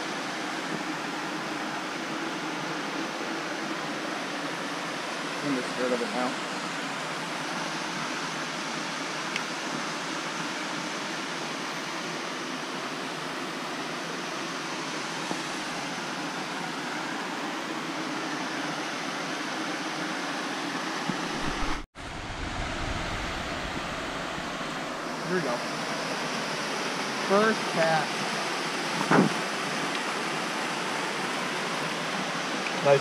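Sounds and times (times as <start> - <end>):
waterfall rushing over rock: 0.0 - 33.0
low rumble: 21.3 - 25.0.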